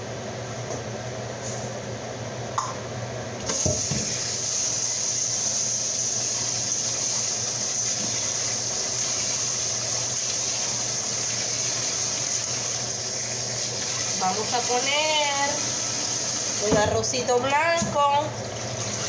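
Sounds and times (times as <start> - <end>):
kitchen tap turning on: 3.4 - 12.8
water running into sink: 3.4 - 19.0.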